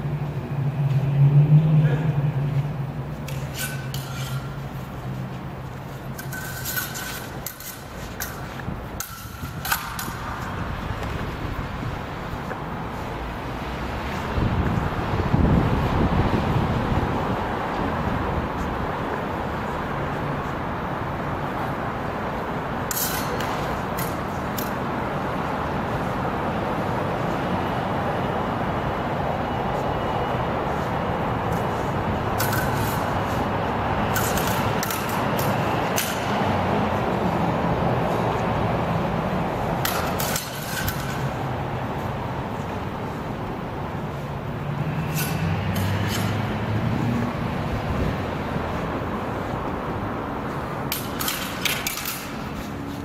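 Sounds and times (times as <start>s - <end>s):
rushing background noise: 0.0s - 53.0s.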